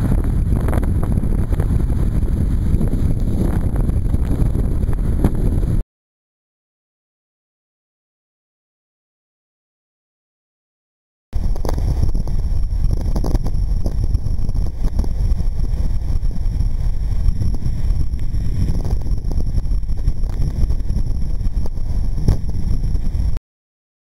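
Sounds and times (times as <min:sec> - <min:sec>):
wind buffeting microphone: 0:00.0 - 0:05.8, 0:11.4 - 0:23.4.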